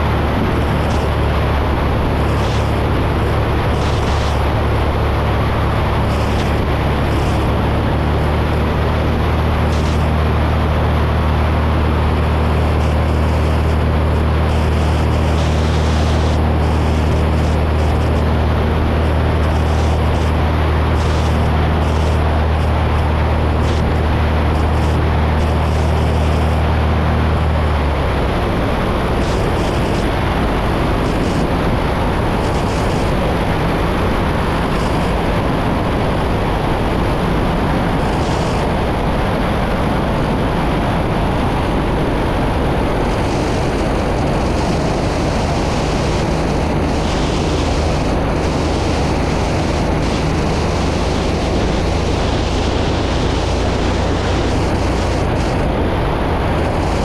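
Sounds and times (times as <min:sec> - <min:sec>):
airplane engine and propeller drone: 0:00.0 - 0:57.0
low hum: 0:00.0 - 0:57.0
rush of air: 0:00.0 - 0:57.0.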